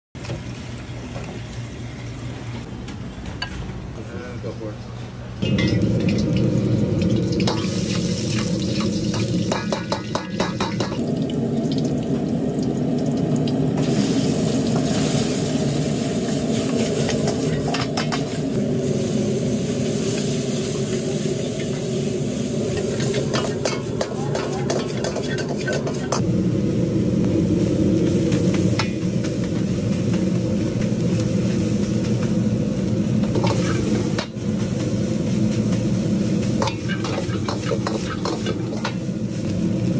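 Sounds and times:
wok burner roaring: 0.2 - 4.2, 5.2 - 39.9
fried rice sizzling in a wok: 5.4 - 39.9
metal ladle clanking against wok: 22.8 - 26.2, 36.6 - 39.0.

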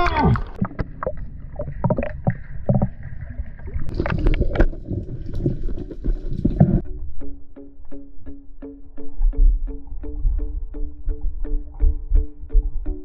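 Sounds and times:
muffled underwater rumble: 0.4 - 7.2
plucked-string music: 6.0 - 13.0.

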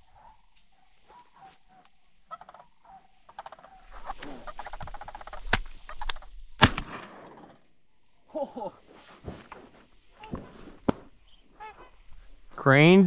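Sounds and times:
cranes calling: 0.0 - 6.4, 10.1 - 12.4
sharp cracks: 4.1 - 7.6.

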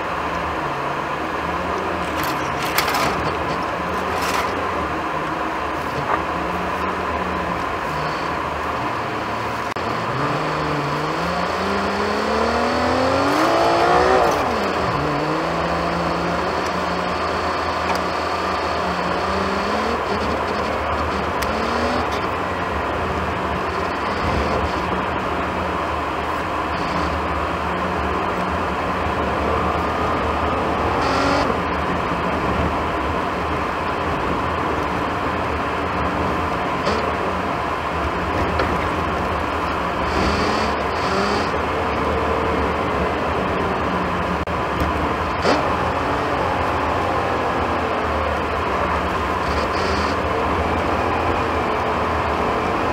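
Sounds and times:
car engine from inside cabin: 0.0 - 52.9
road noise: 0.0 - 52.9.

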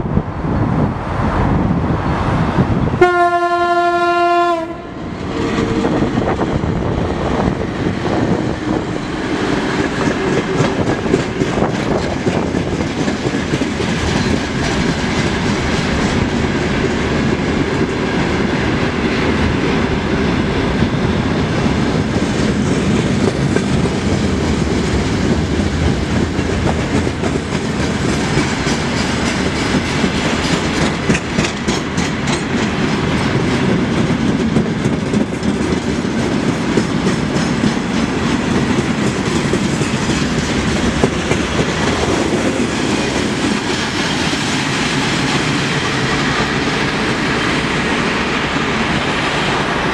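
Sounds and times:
train wheels rumbling on rail: 0.0 - 49.9
wheels clicking over rail joints: 7.4 - 18.0, 22.0 - 48.4.

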